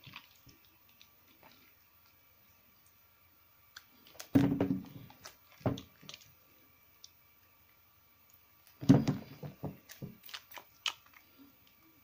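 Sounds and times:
wet squelch of soap in hands: 0.0 - 3.1, 9.8 - 12.0.

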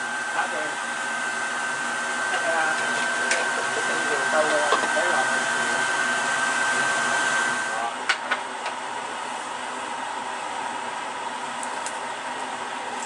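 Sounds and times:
thin high whine: 0.0 - 8.0
rushing kitchen noise: 0.0 - 8.4.

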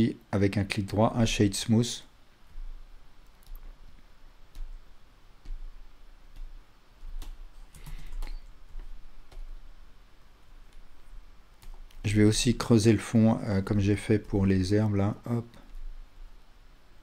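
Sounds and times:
low steady hum: 0.0 - 17.0
computer mouse and keyboard clicks: 3.2 - 3.7, 6.3 - 9.5.

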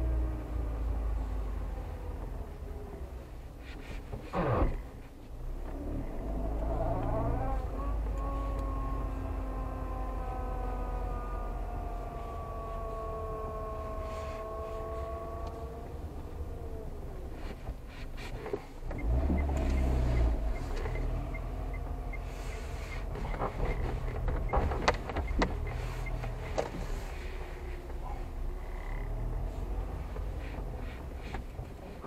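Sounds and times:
car engine and tyre rumble: 0.0 - 32.0.

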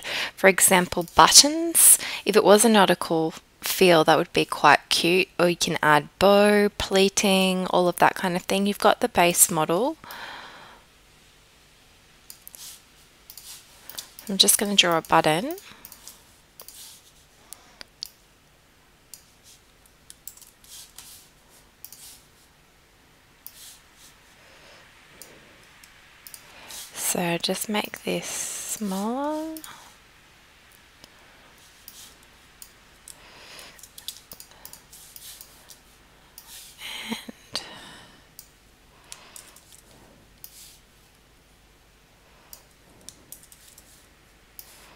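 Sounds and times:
computer mouse and keyboard clicks: 15.8 - 17.0, 20.1 - 21.1, 21.8 - 22.2, 25.2 - 26.4, 33.8 - 35.8, 39.1 - 40.6, 42.5 - 43.9.

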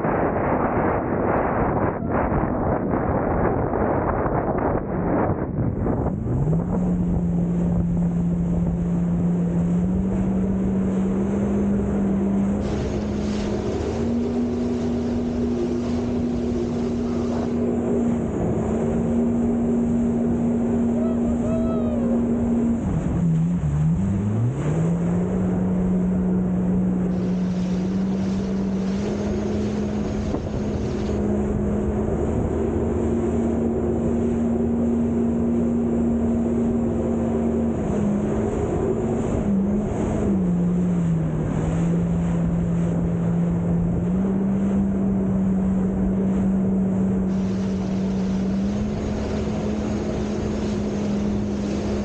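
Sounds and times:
jet ski engine droning: 0.0 - 52.0
water rushing: 0.0 - 52.0
wind on microphone: 0.0 - 52.0.

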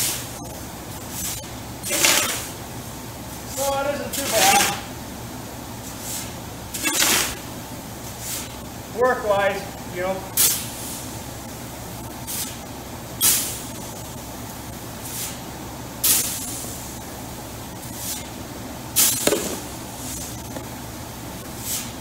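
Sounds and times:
auger humming: 0.0 - 10.4
shovel swishing through grain: 4.2 - 4.8, 5.9 - 7.4, 21.6 - 22.0.

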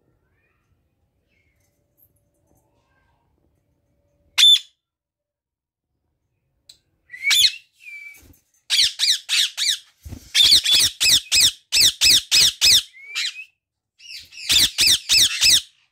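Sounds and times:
parrots squawking: 8.7 - 13.4, 14.0 - 15.8.

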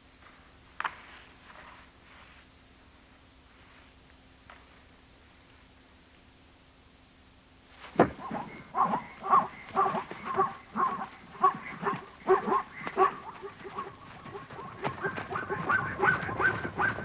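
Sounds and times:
sharp thump: 7.9 - 8.2
zebras yelping alarm calls: 8.0 - 17.0.

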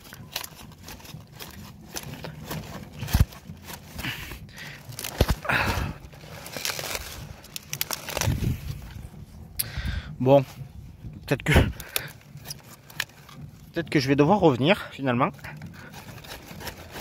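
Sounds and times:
leaves and straw rustling: 0.0 - 9.4, 10.2 - 17.0
knife cutting cabbage stem: 15.8 - 17.0.

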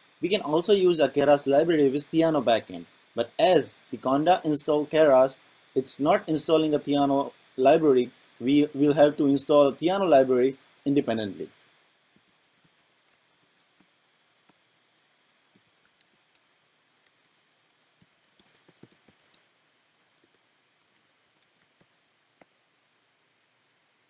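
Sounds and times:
typing on computer keyboard: 12.2 - 13.9, 15.5 - 19.4, 20.2 - 22.5.

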